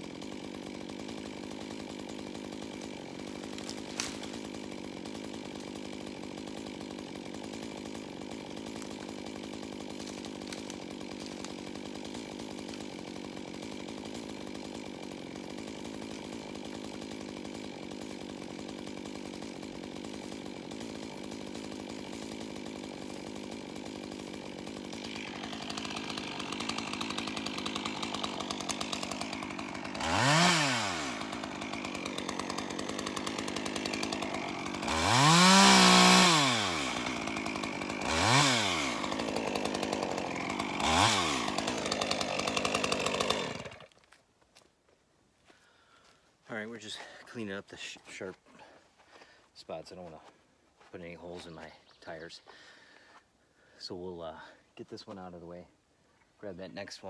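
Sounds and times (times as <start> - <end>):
chainsaw revving: 0.0 - 44.0
chainsaw idling: 0.0 - 44.7, 45.4 - 55.5.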